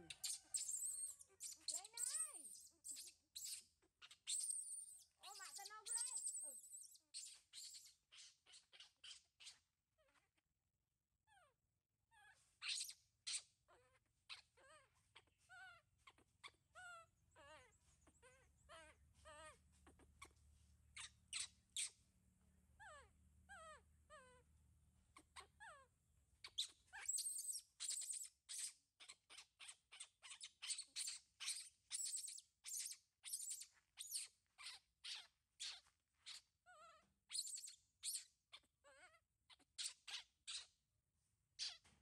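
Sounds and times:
baby monkey crying: 0:00.0 - 0:03.1, 0:05.2 - 0:09.6, 0:12.2 - 0:20.3, 0:22.8 - 0:24.4.

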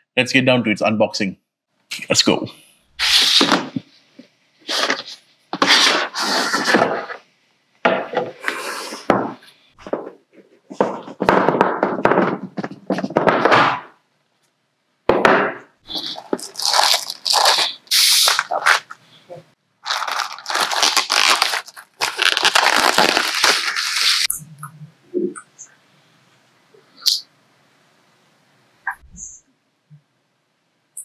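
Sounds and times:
plastic wrapping rustling: 0:15.9 - 0:19.0, 0:19.8 - 0:24.3.

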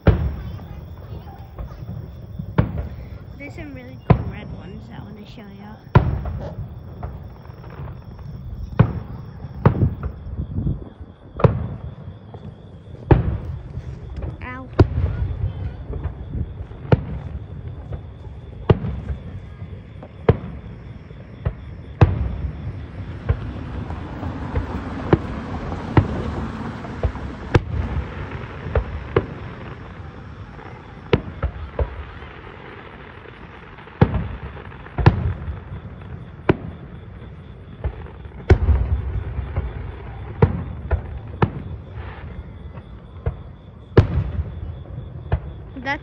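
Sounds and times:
distant fireworks bursting: 0:00.0 - 0:46.0
fireworks crackle: 0:00.0 - 0:46.0.

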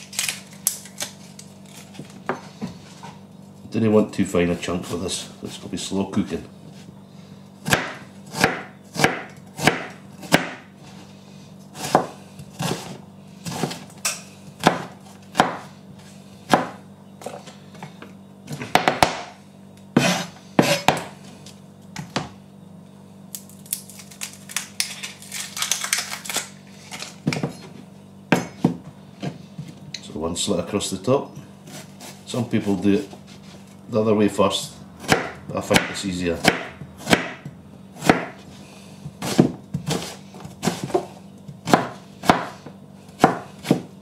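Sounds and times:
knife chopping on plastic board: 0:07.6 - 0:10.6, 0:11.8 - 0:13.8, 0:14.6 - 0:15.7, 0:16.5 - 0:16.8, 0:18.5 - 0:21.2, 0:35.0 - 0:38.4, 0:39.0 - 0:43.9.

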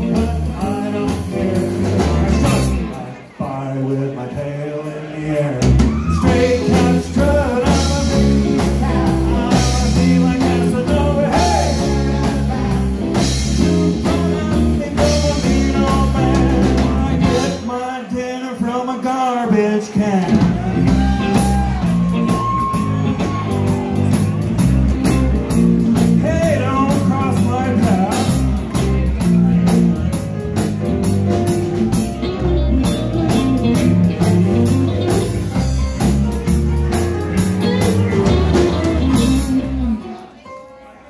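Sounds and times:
man singing: 0:00.0 - 0:22.2, 0:25.5 - 0:30.0
rockabilly band playing: 0:00.0 - 0:41.0.

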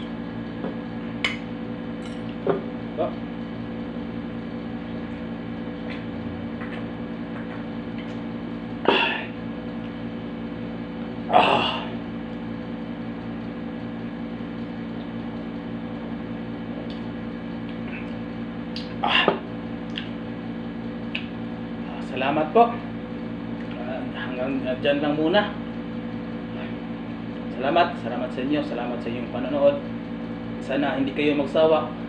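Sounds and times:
electrical hum: 0:00.0 - 0:32.0.

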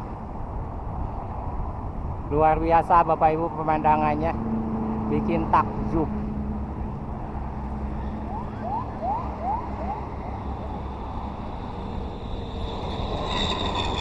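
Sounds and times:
road traffic rumble: 0:00.0 - 0:14.0
quick rising chirps: 0:10.2 - 0:14.0.

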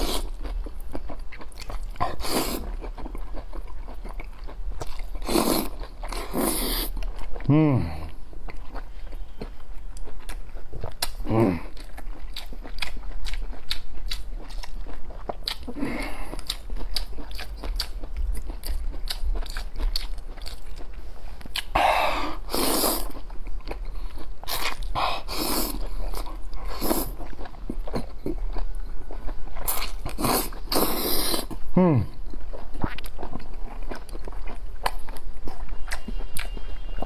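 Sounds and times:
crunchy chewing: 0:00.0 - 0:37.0
mouth slurping: 0:05.2 - 0:06.9, 0:30.1 - 0:31.6.

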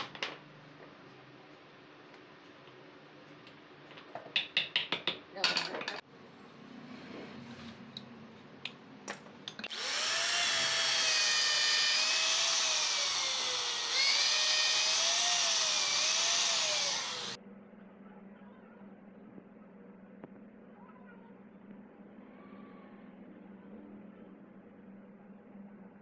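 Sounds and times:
power drill running: 0:09.7 - 0:17.4.

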